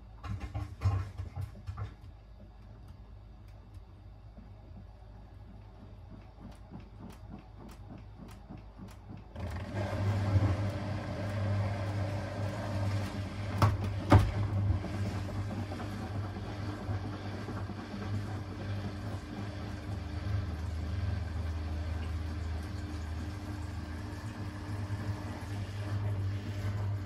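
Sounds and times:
washing machine spinning hum: 0:00.0 - 0:27.0
washing machine drum knocking: 0:04.7 - 0:25.5.

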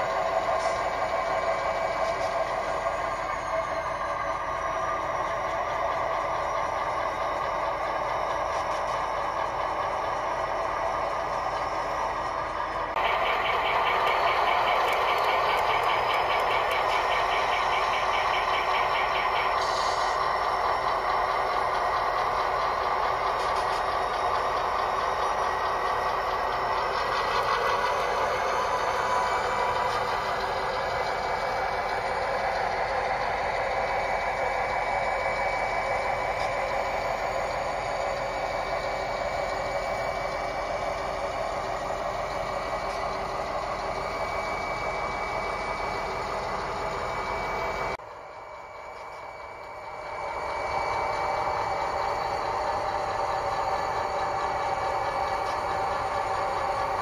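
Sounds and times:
diesel engine sound from speaker: 0:00.0 - 0:57.0.

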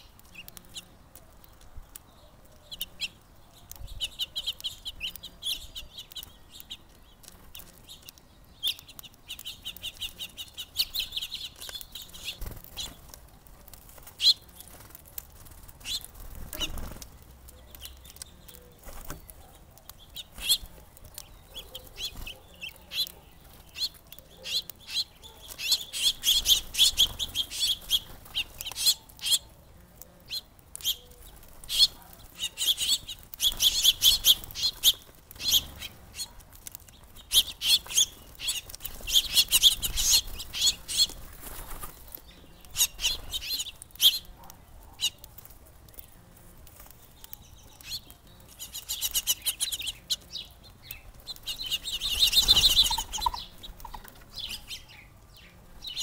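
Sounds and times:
birds scuffling on feeder clicks: 0:00.0 - 0:56.0
wing flutters: 0:11.6 - 0:17.2
finches chirping: 0:17.5 - 0:29.6, 0:30.2 - 0:45.3, 0:47.0 - 0:56.0.

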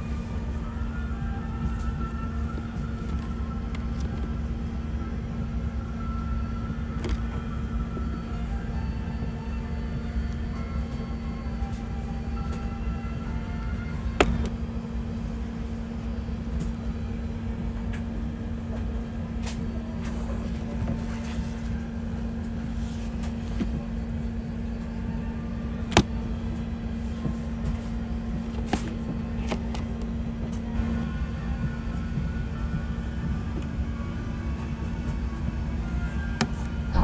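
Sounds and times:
airplane cabin rumble and hum: 0:00.0 - 0:37.0.

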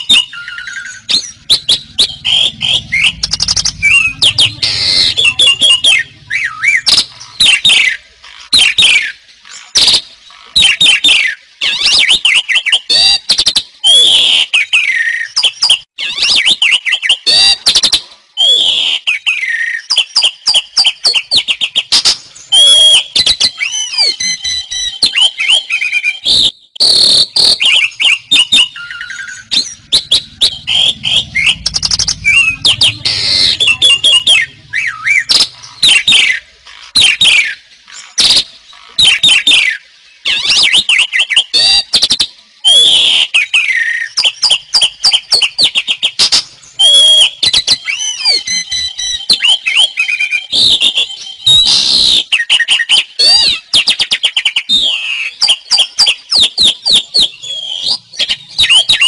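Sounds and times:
slurred gliding bird whistles: 0:00.0 - 0:10.0, 0:10.6 - 0:59.0
bird singing with chattering clicks: 0:43.4 - 0:59.0.

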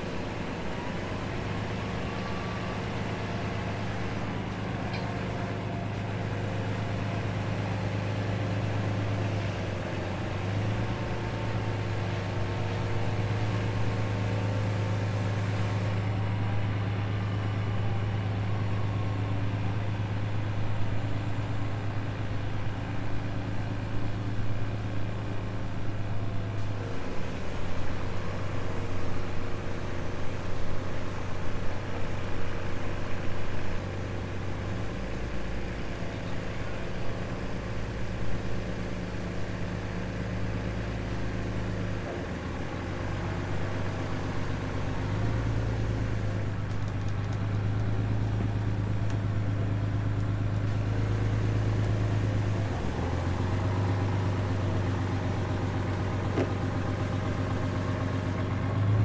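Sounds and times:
boat engine running at low speed: 0:00.0 - 0:59.0.

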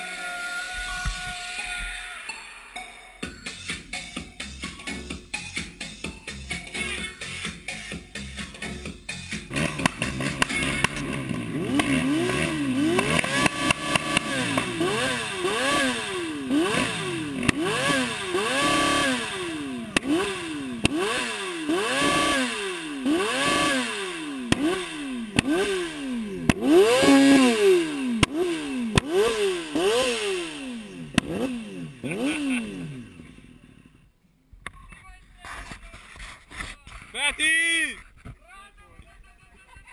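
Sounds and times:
motorcycle engine revving: 0:06.6 - 0:34.1
sharp exhaust cracks: 0:09.4 - 0:33.9.

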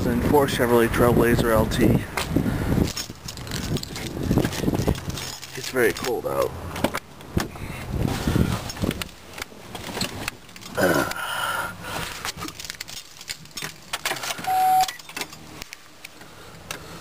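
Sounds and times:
keys jangling and clicking: 0:02.9 - 0:06.1
short dashboard chime: 0:14.5 - 0:15.0.

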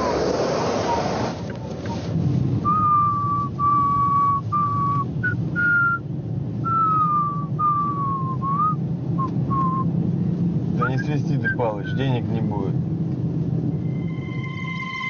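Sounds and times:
car cabin hum: 0:00.0 - 0:14.3
man whistling a slow tune: 0:02.6 - 0:06.0, 0:06.6 - 0:09.9.

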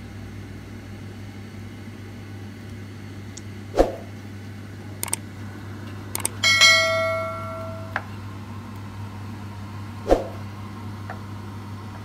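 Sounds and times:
low hum: 0:03.3 - 0:08.2, 0:10.0 - 0:10.5.

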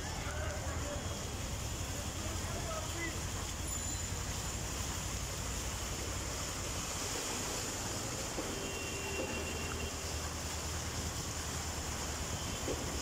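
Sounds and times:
water rushing and swishing: 0:00.0 - 0:13.0.

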